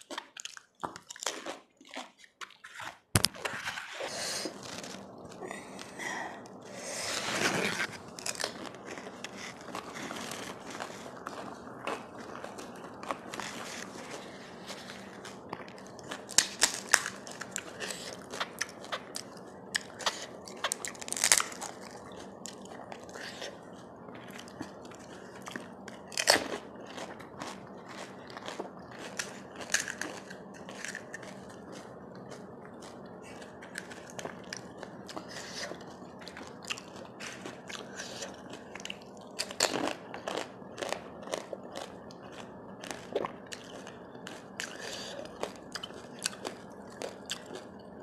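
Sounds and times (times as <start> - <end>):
wet chewing: 0.0 - 48.0
crisp shells crunching: 1.2 - 23.4, 26.1 - 31.7.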